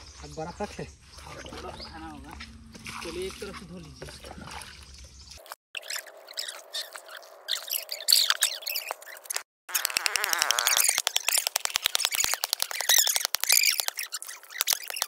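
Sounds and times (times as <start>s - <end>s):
water splashing and dripping: 0.3s - 9.4s
fast clicks: 8.3s - 15.0s.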